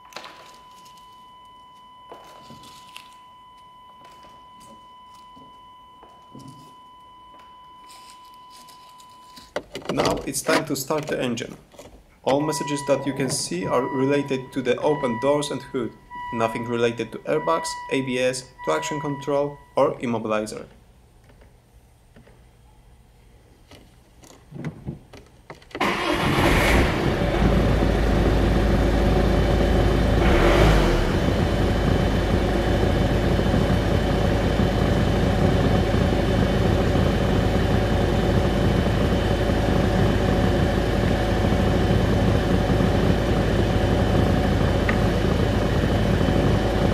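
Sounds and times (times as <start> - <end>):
car engine starting and idling: 25.8 - 46.9.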